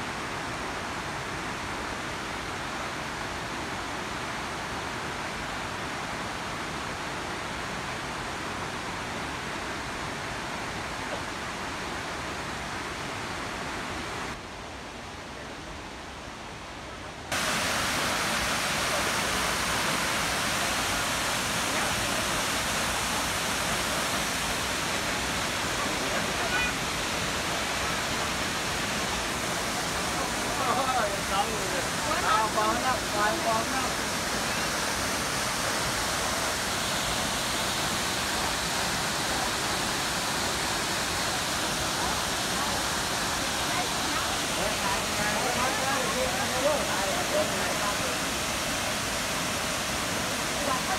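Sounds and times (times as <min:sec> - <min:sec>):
waterfall crashing into pool: 0:17.3 - 0:50.9.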